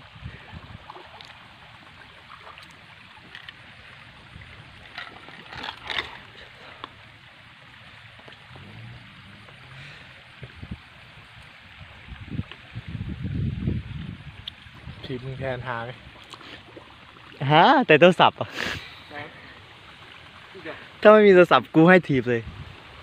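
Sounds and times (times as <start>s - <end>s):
person wading through water: 0.4s - 10.5s.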